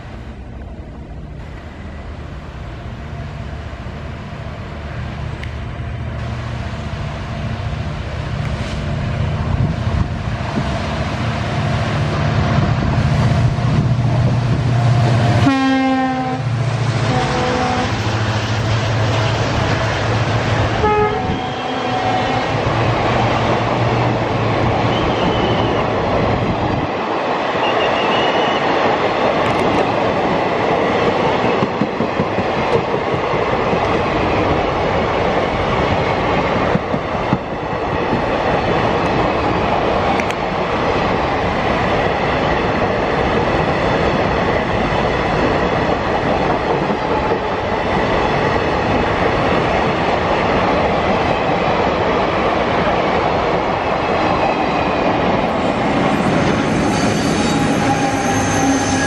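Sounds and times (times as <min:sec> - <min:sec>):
diesel locomotive engine drone: 0:00.0 - 0:59.0
wheels clacking on rails: 0:08.3 - 0:59.0
train horn: 0:14.8 - 0:18.0, 0:20.8 - 0:22.7, 0:27.7 - 0:28.6, 0:57.0 - 0:59.0.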